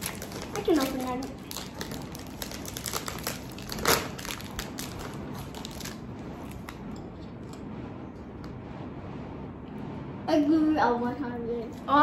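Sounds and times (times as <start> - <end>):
plastic bag crinkling: 0.0 - 6.0.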